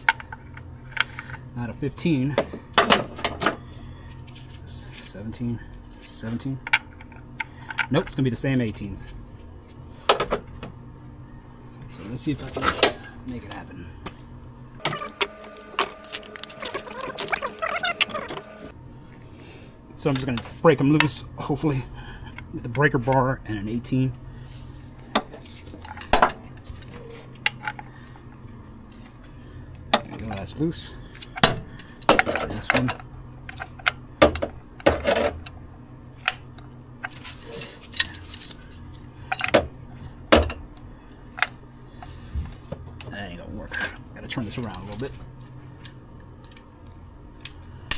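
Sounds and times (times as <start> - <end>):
low steady hum: 0.0 - 47.9
metal tools clinking: 14.9 - 18.4.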